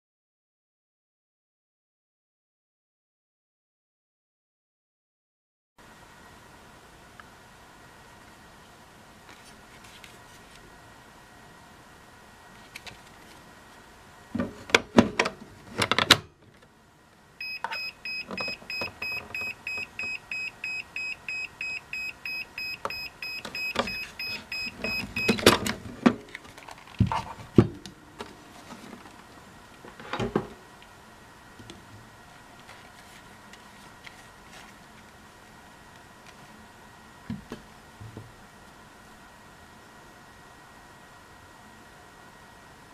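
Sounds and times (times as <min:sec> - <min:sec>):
charger beeping: 0:17.4 - 0:25.6.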